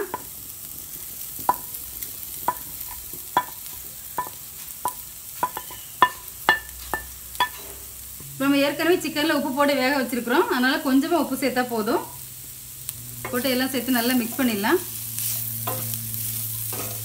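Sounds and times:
faint sizzle: 0.0 - 17.0
spatula scraping a plate: 15.2 - 17.0.

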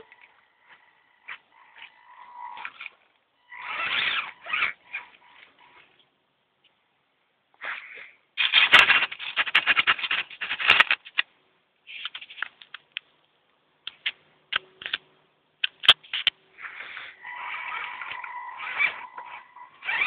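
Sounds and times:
toy car motor whirring: 0.0 - 5.9, 16.6 - 20.0.

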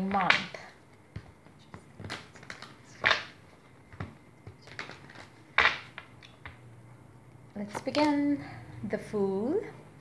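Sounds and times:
cards being shuffled: 0.0 - 6.4.

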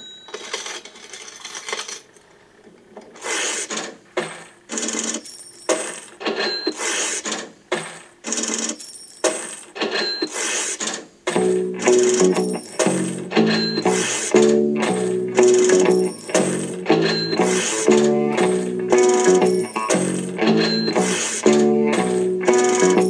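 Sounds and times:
cash register clanking: 0.0 - 2.1, 3.2 - 23.0
coins clinking: 0.0 - 2.1, 8.3 - 10.3, 11.8 - 14.3, 15.4 - 23.0.

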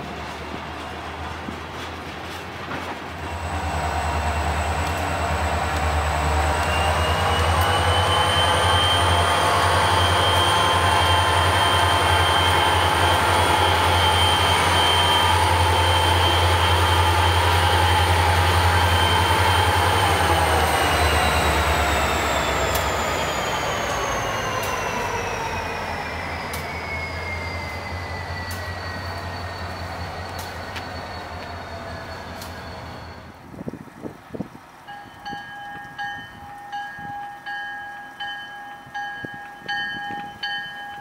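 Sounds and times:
diesel locomotive engine drone: 0.0 - 41.0
hopper cars rolling over bridge: 0.0 - 41.0
high whines: 3.3 - 33.3.

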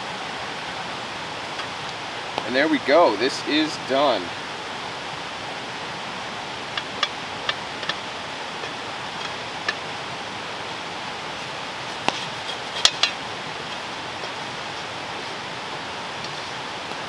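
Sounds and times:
steady rushing noise: 0.0 - 17.0
spatula scraping frying pan: 11.8 - 14.4.

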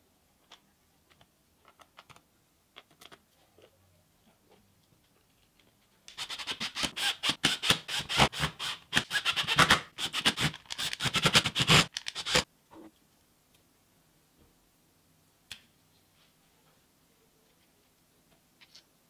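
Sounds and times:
screwdriver clicking and scraping screws: 6.1 - 12.5.

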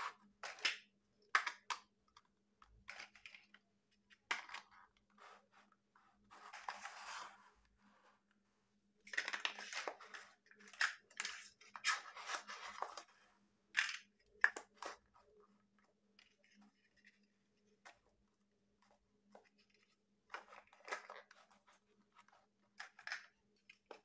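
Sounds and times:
plastic blocks clacking: 0.1 - 4.9, 9.0 - 13.1, 13.7 - 15.3, 19.4 - 24.0.

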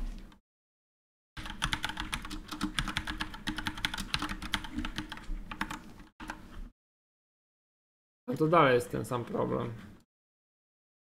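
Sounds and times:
fast typing on keyboard: 1.4 - 6.4.

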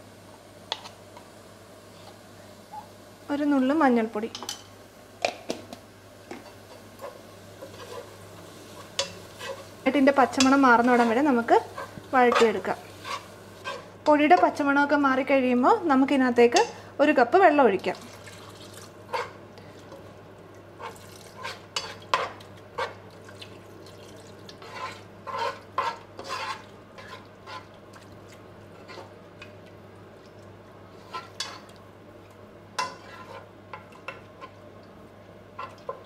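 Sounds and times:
metal spoon scraping a pot: 24.6 - 27.7, 32.8 - 33.5.

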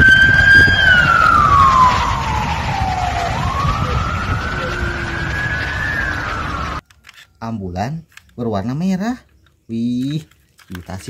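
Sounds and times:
low rumble: 0.0 - 6.8
ambulance siren wailing: 0.0 - 7.1.

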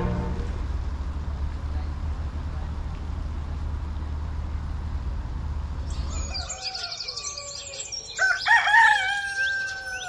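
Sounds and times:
low rumble: 0.0 - 5.8
birds chirping and calling: 5.8 - 10.0.

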